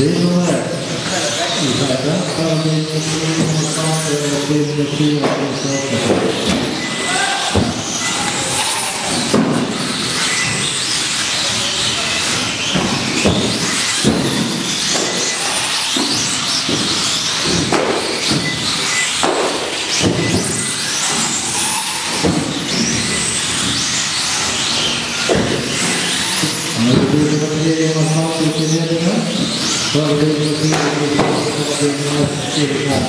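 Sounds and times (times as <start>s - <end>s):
electric toy car motors whining: 0.0s - 33.0s.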